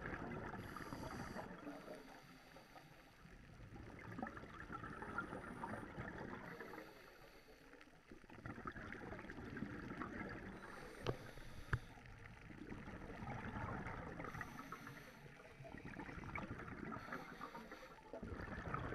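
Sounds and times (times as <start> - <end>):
diver breathing through regulator: 0.6 - 3.1, 10.6 - 12.0, 14.2 - 15.4, 16.9 - 18.0
bubbling exhalations: 18.2 - 18.9.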